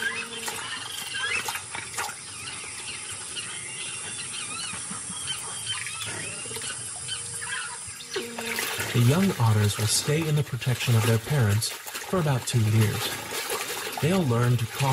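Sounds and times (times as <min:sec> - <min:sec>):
otters squeaking and chirping: 0:00.0 - 0:11.5.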